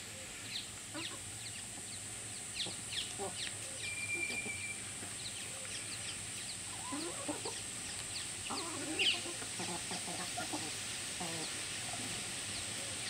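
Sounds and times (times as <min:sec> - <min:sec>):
steady high hiss: 0:00.0 - 0:13.0
hens clucking: 0:00.8 - 0:13.0
short high chirps: 0:03.8 - 0:04.9.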